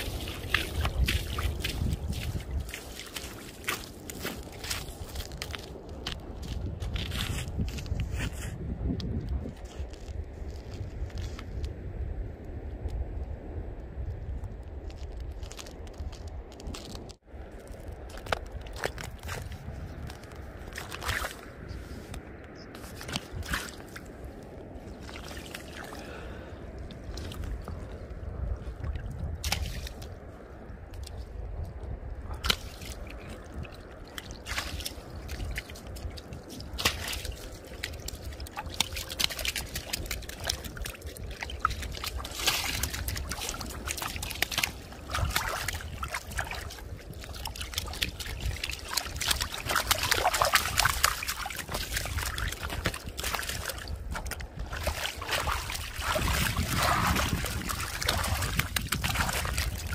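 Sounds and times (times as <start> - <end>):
fish flopping and splashing: 32.3 - 59.9.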